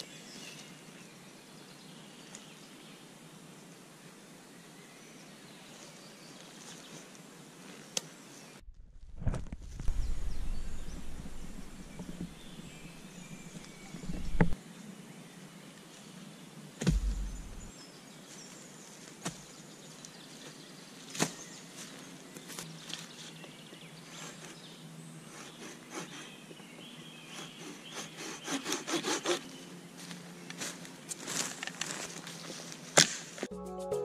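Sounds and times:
knocks on wood: 16.8s - 17.7s
rasping strokes on wood: 25.3s - 26.4s, 27.3s - 29.5s.

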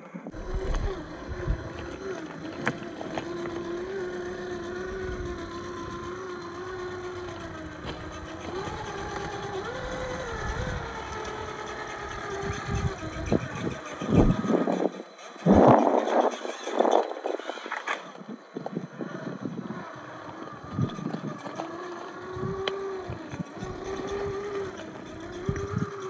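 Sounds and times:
electric motor whining: 0.0s - 26.0s
low rumbles: 0.3s - 16.4s.

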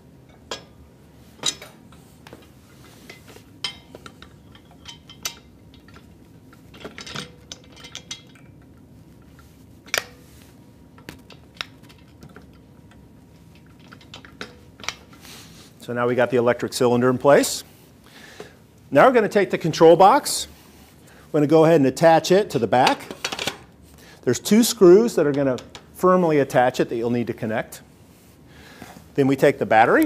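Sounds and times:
metal pins clinking: 0.2s - 15.2s.

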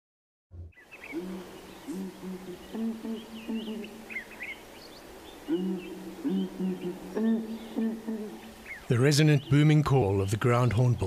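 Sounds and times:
small birds chirping: 0.7s - 11.0s
hornbills booming call: 0.8s - 8.9s.

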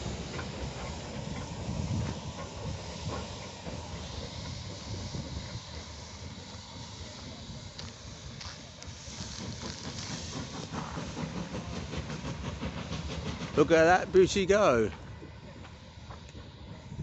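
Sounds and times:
low rumble of locomotive: 0.0s - 17.0s
steam locomotive hissing: 0.0s - 17.0s.

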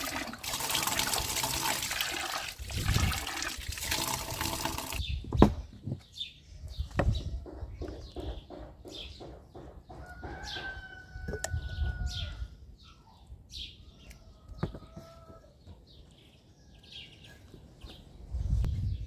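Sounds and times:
small birds chirping: 5.0s - 19.0s
rooster crowing: 10.0s - 12.5s, 14.1s - 15.6s.

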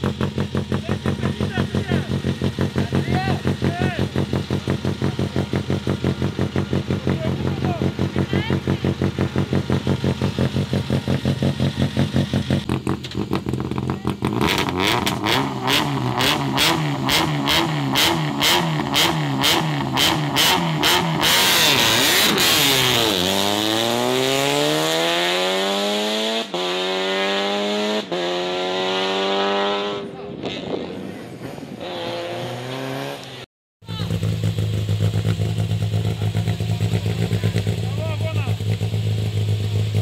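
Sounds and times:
rally car engine revving: 0.0s - 40.0s.

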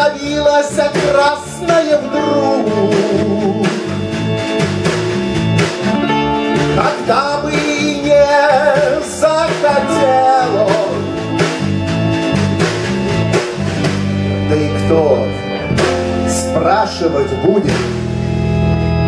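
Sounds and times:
person singing: 0.0s - 4.0s, 6.7s - 11.5s
live rock band playing: 0.0s - 19.0s.

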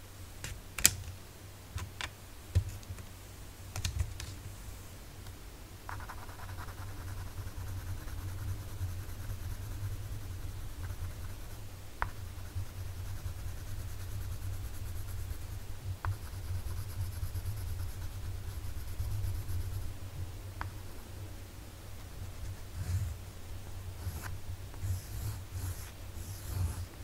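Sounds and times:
pencil scratching on paper: 22.2s - 23.2s, 24.0s - 26.9s.

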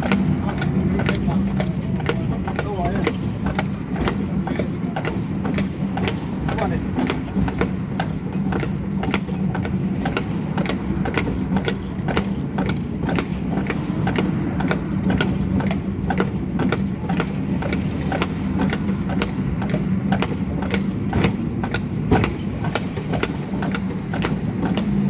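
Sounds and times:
clatter of clicks and hooves: 0.0s - 25.0s
steel wheels rumbling on rails: 0.0s - 25.0s.

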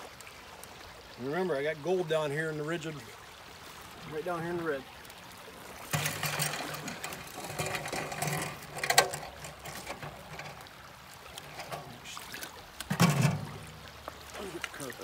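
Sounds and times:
water running off: 5.5s - 15.0s
metal rattling and scraping: 5.8s - 10.8s, 11.4s - 12.0s, 12.9s - 13.8s.

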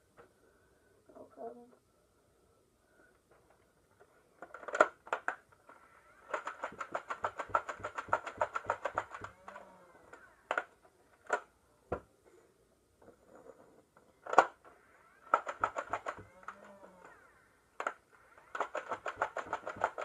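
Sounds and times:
plastic blaster handling clacks: 4.4s - 11.5s, 17.8s - 20.0s
rapid dart shots: 4.7s - 9.8s, 14.3s - 20.0s
toy blaster motors whirring: 5.6s - 10.7s, 14.3s - 20.0s.

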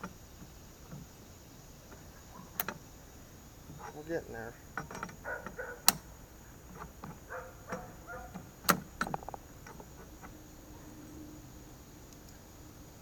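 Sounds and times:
wrench clinking on metal nut: 4.8s - 6.1s.

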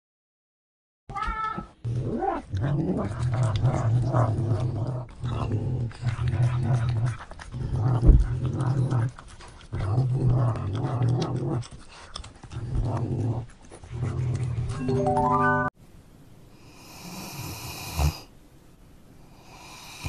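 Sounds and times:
cat growling: 1.6s - 14.8s.

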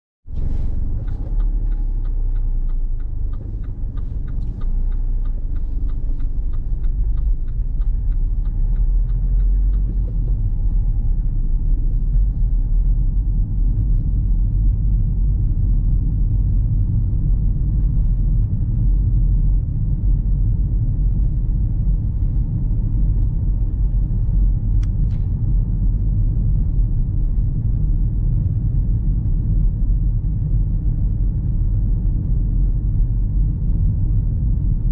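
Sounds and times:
road and engine rumble: 0.3s - 34.9s
light ticking: 0.4s - 34.9s.

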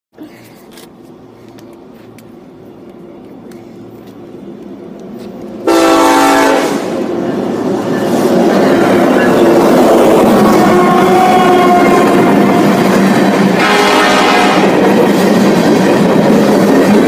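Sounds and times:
freight train rumbling: 0.2s - 17.0s
wheels rattling on rail: 0.2s - 17.0s
locomotive air horn blast: 5.6s - 7.0s, 10.4s - 12.7s, 13.6s - 14.8s.

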